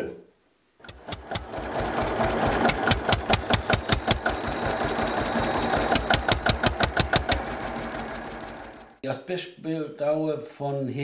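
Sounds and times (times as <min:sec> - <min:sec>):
old tractor engine running: 0:00.8 - 0:09.0.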